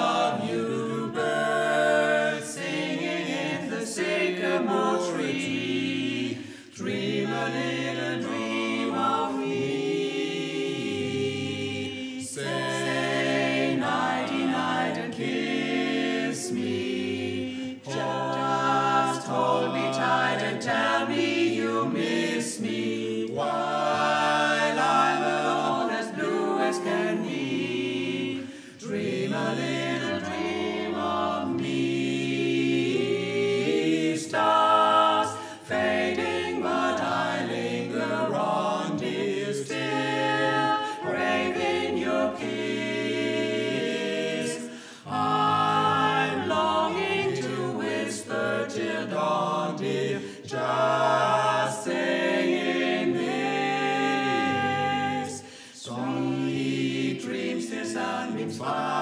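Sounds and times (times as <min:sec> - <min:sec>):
a cappella vocal quartet singing: 0:00.0 - 0:59.0
singers breathing: 0:06.4 - 0:06.8, 0:28.4 - 0:28.8, 0:35.3 - 0:35.6, 0:44.6 - 0:45.1, 0:50.2 - 0:50.5, 0:55.4 - 0:55.8.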